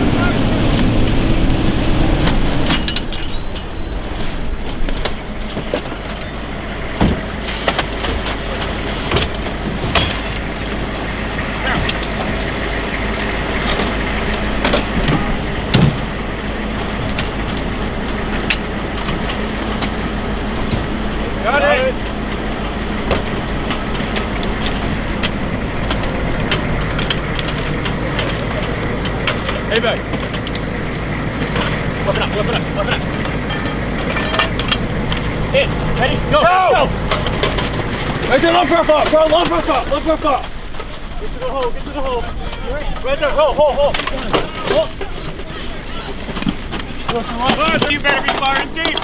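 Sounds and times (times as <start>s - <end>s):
vehicle engine running: 0.0s - 49.0s
high brake squeal: 2.6s - 6.4s
sharp metal clanks: 9.9s - 10.4s
sharp clicks and knocks: 22.0s - 36.0s, 37.0s - 49.0s.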